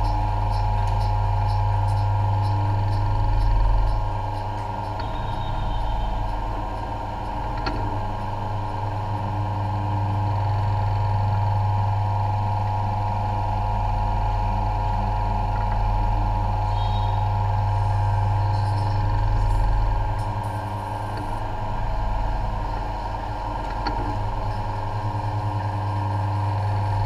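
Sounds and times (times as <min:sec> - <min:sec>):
low machine hum: 0:00.0 - 0:27.0
constant high tone: 0:04.9 - 0:06.4.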